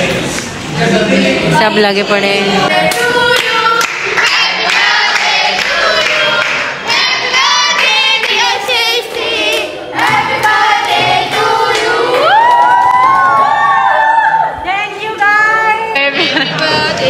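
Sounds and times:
group singing: 0:00.0 - 0:13.7, 0:15.4 - 0:17.0
hands clapping: 0:02.9 - 0:06.8.

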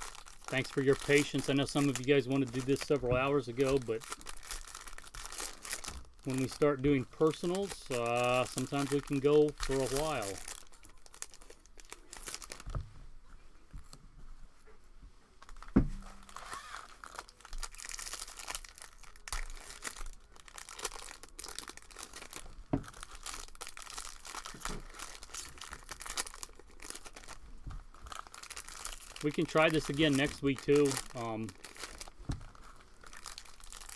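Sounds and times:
foil wrappers crinkling and tearing: 0:00.0 - 0:12.8, 0:15.4 - 0:33.9
dull thump: 0:15.7 - 0:16.2.

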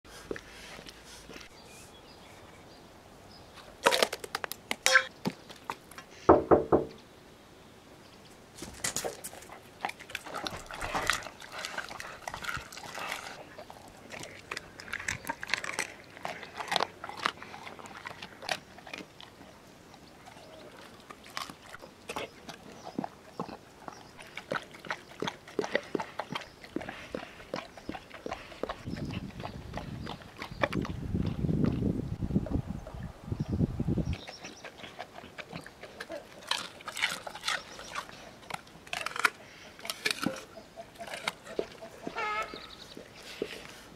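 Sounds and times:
dog chewing wetly: 0:09.2 - 0:31.9, 0:34.1 - 0:43.9.

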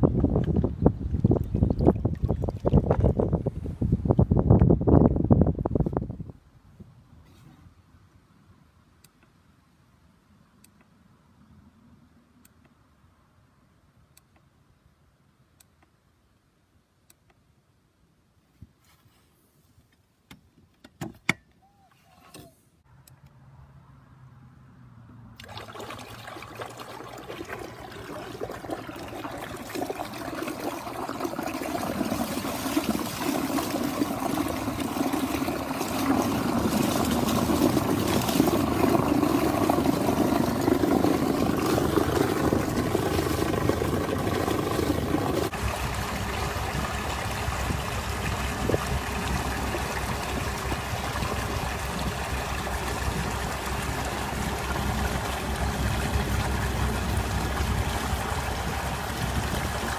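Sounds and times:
water rushing past hulls: 0:00.0 - 0:04.3, 0:25.4 - 0:59.9
propeller churning water: 0:00.0 - 0:05.6, 0:25.4 - 0:59.9.

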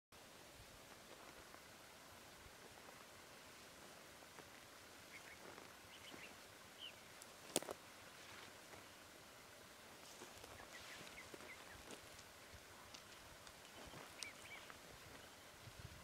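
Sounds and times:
faint clicks: 0:10.4 - 0:14.8
high bird chirps: 0:13.6 - 0:15.5.

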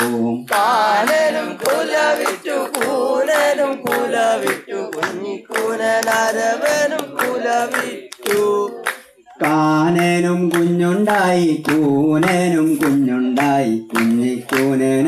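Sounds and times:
group singing in chorus: 0:00.0 - 0:15.0.

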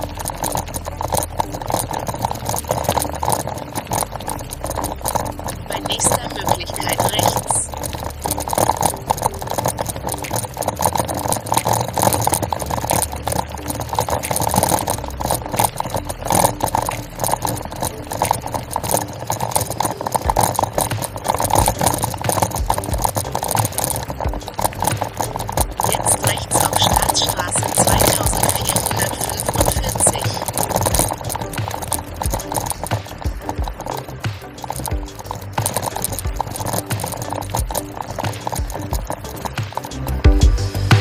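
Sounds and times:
bicycle tyres crunching on gravel: 0:00.0 - 0:41.0
bike rattling: 0:00.0 - 0:41.0
wind noise: 0:00.0 - 0:41.0.

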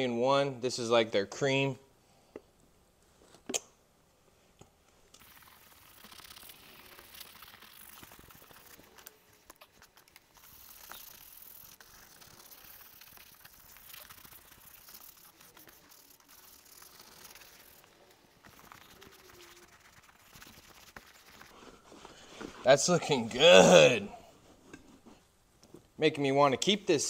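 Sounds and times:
brush scrubbing leather: 0:05.2 - 0:23.2.

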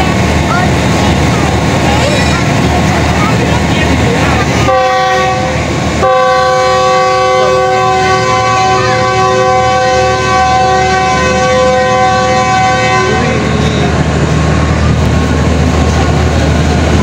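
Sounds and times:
train horn blasts: 0:04.6 - 0:13.9.

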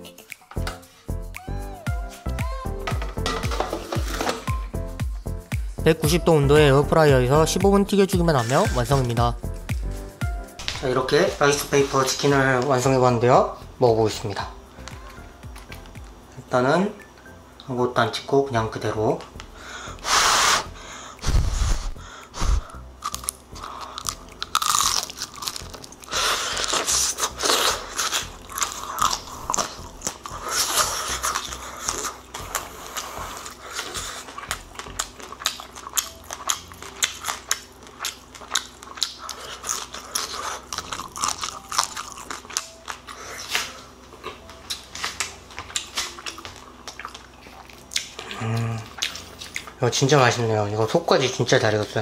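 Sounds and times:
crunchy chewing: 0:21.3 - 0:49.8.

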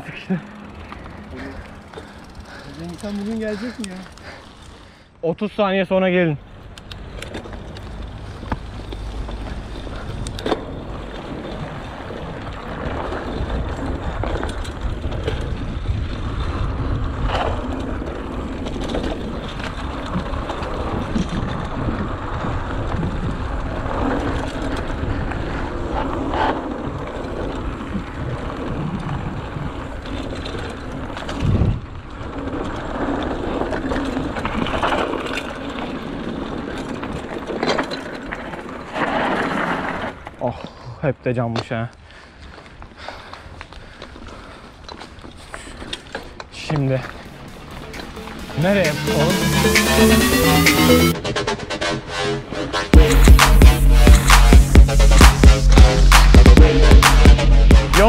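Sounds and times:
bike rattling: 0:00.0 - 0:40.6, 0:41.4 - 0:48.9
tyres rolling on gravel: 0:00.0 - 0:49.4
wind noise on microphone: 0:09.1 - 0:37.6.

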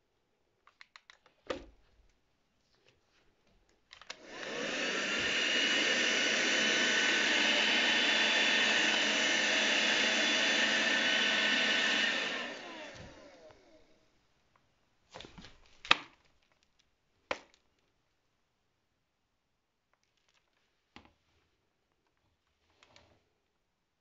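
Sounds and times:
handheld vacuum cleaner whine: 0:04.1 - 0:13.8.

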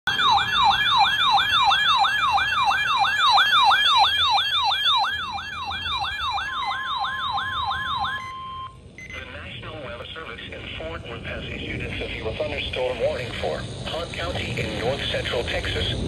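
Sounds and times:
steady alert tone: 0:00.1 - 0:09.2
siren alarm falling yelp: 0:00.1 - 0:09.3.

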